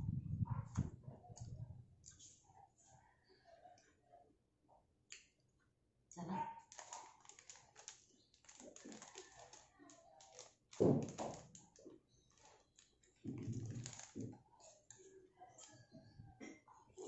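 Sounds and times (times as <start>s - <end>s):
plastic packet crinkling: 6.7s - 14.4s.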